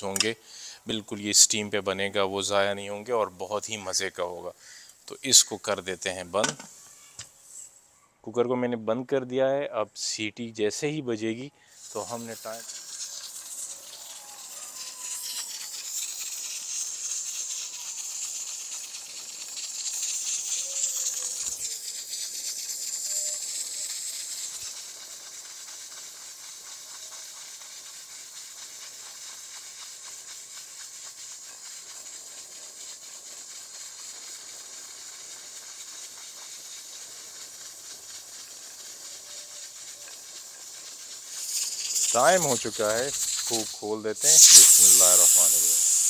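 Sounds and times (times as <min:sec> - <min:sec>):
pressure cooker hissing steam: 0:00.0 - 0:07.8, 0:11.2 - 0:46.0.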